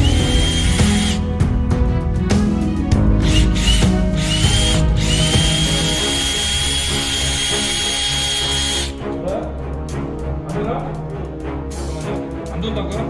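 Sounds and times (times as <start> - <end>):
cordless drill motor whine: 0.0 - 1.2, 3.2 - 8.9.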